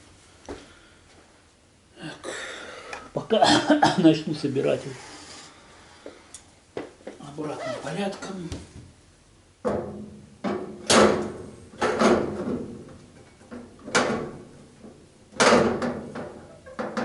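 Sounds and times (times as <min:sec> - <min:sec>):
metal panels knocking and clanking: 0:09.6 - 0:17.0.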